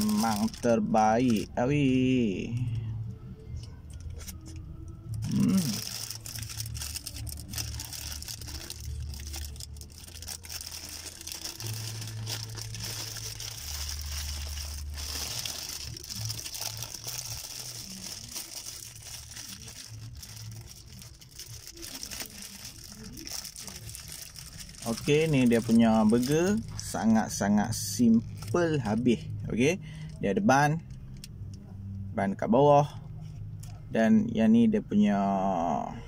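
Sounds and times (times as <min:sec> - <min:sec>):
paper wrapper crinkling: 0:00.0 - 0:02.0, 0:04.0 - 0:29.2
low steady hum: 0:00.0 - 0:36.0.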